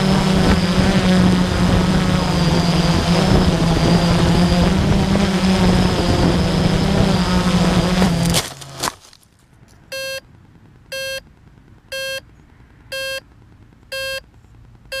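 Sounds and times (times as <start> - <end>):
quadcopter motors cutting out: 0.0 - 8.9
short even beeps: 9.9 - 10.3, 10.9 - 11.2, 11.9 - 12.3, 12.9 - 13.3, 13.9 - 14.2.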